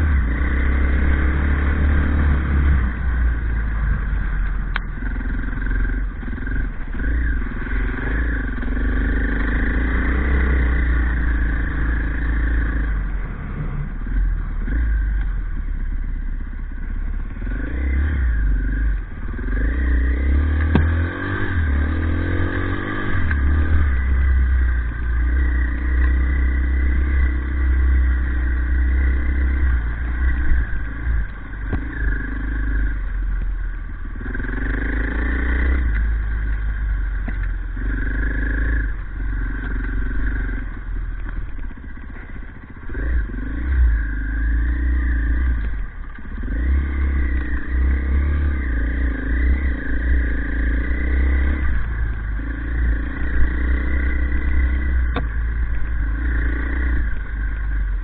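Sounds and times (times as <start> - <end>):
motorcycle engine revving: 0.0 - 58.0
motorcycle knocks on rough trail: 20.6 - 21.2, 31.7 - 32.0.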